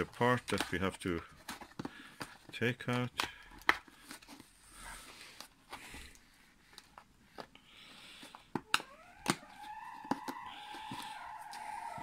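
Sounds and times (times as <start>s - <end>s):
cardboard box rustling: 0.0s - 2.6s.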